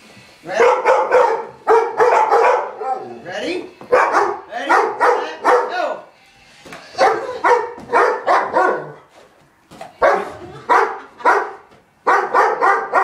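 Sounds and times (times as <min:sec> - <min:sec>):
dog barking: 0:00.6 - 0:03.2, 0:03.9 - 0:05.9, 0:07.0 - 0:09.1, 0:10.0 - 0:13.0.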